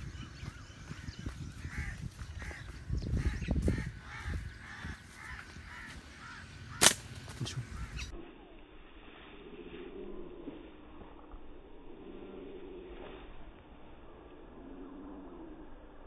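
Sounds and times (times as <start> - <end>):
birds cawing: 0.0 - 8.2
low rumbling noise: 0.0 - 16.0.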